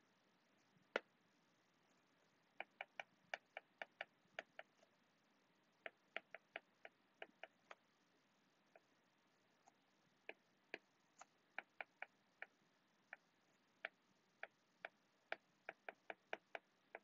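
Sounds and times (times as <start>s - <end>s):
stylus tapping on glass screen: 2.6s - 4.8s.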